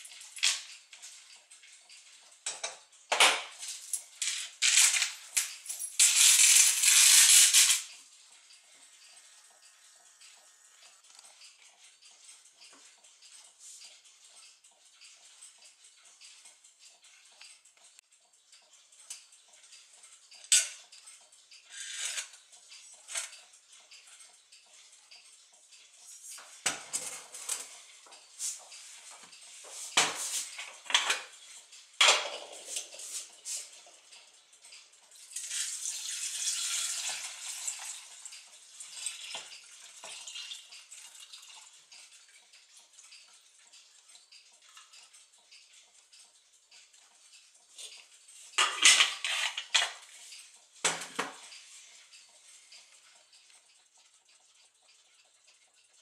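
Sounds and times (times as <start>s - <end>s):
metal parts clattering into pot: 2.4s - 7.9s, 30.0s - 31.4s, 32.0s - 33.1s, 35.3s - 41.6s, 48.6s - 50.1s
liquid pouring into pot: 35.4s - 42.3s.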